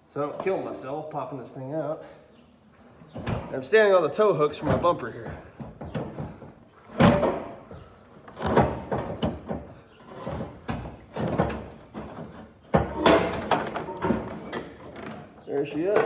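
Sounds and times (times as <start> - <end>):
metal clunks and knocks: 4.6 - 16.0.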